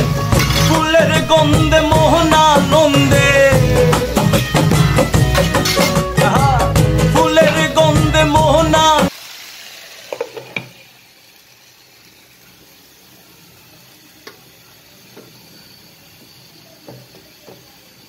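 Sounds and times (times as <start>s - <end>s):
song playing: 0.0s - 9.1s
greens sizzling under lid: 0.0s - 18.0s.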